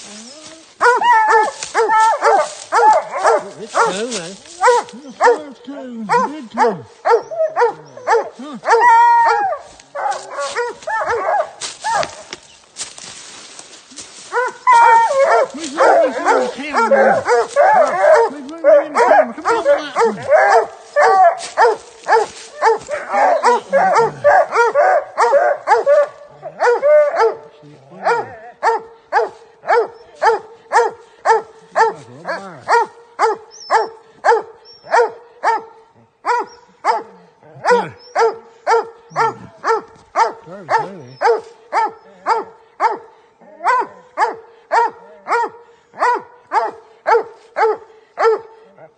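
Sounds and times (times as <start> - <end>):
hound bawling: 0.0 - 5.5, 6.1 - 12.4, 14.3 - 35.6
hounds barking: 0.0 - 48.9.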